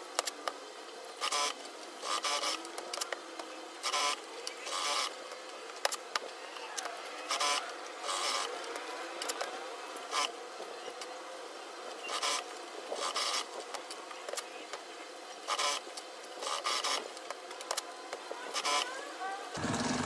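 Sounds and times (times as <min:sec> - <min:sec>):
sewing machine stitching: 0:19.6 - 0:20.0.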